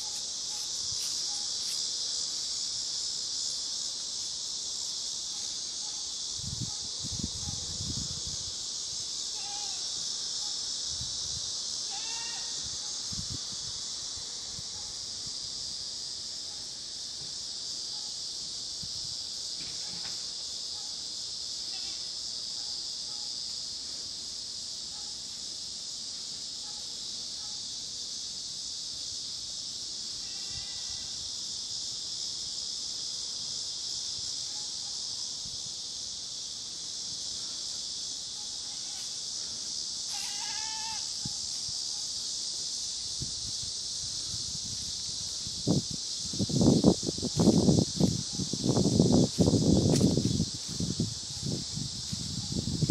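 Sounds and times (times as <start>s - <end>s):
high insect buzz: 0.0s - 52.9s.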